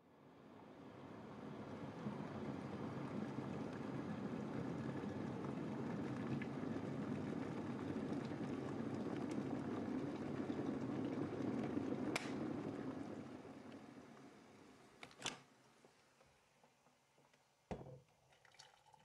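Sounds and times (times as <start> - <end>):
electric kettle rumbling: 1.4 - 14.6
kettle switch click: 12.2 - 12.4.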